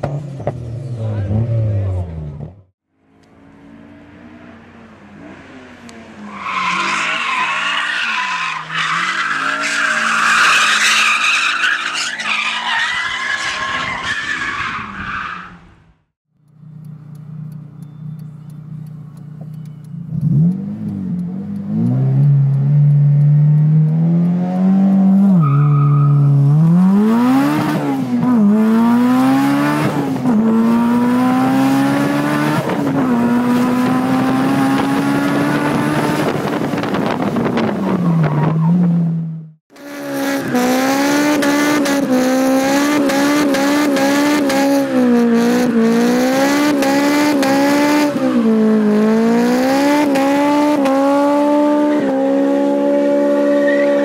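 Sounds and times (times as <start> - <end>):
tyres screeching in a burnout: 6.2 - 15.7, 25.1 - 27.8, 52.6 - 54.0
car engine revving: 16.4 - 54.0.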